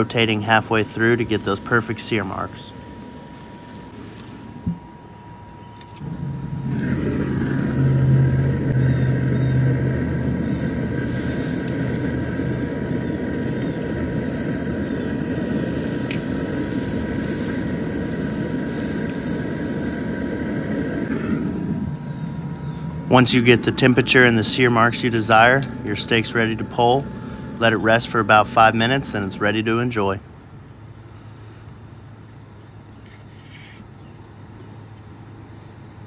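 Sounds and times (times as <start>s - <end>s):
steaks searing: 0.0s - 4.6s, 6.4s - 29.8s
steady whine: 0.0s - 31.3s
grill fire and fan rumble: 0.0s - 36.0s.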